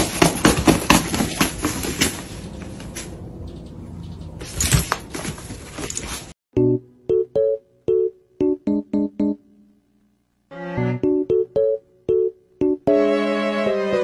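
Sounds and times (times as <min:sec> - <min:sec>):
piano notes: 0:06.6 - 0:14.0.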